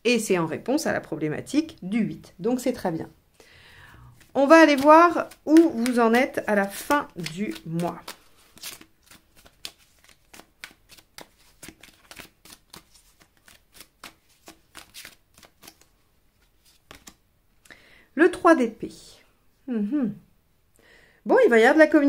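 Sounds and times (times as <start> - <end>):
cards being shuffled: 4.2 - 17.7.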